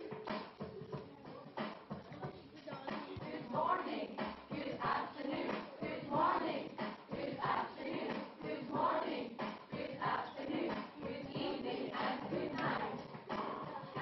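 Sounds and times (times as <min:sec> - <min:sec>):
backing music: 0:00.0 - 0:14.0
woman singing: 0:02.5 - 0:06.4, 0:09.7 - 0:14.0
children singing in chorus: 0:03.1 - 0:14.0.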